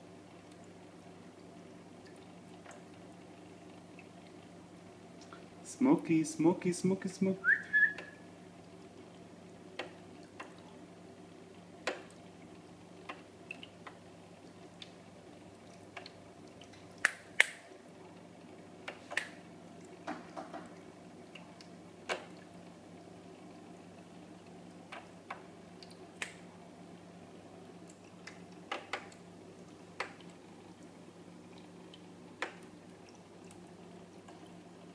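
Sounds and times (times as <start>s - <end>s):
water drips and plinks: 0.2s - 5.6s, 11.7s - 23.1s.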